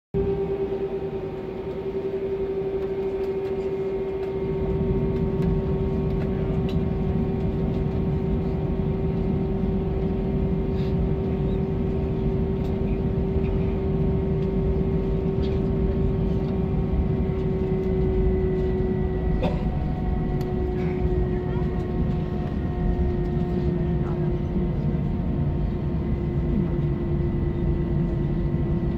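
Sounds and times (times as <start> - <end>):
constant engine whine: 0.1 - 28.9
jet engine rumble: 0.2 - 28.9.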